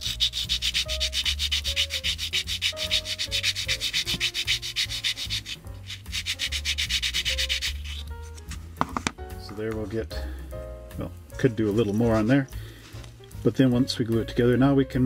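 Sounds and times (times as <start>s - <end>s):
plastic part rasping on sandpaper: 0.0s - 8.6s.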